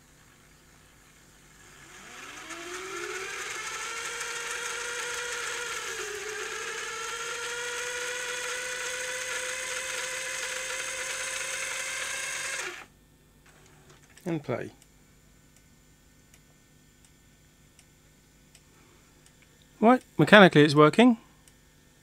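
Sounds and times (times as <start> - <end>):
tape deck motor whine: 0.0 - 14.1.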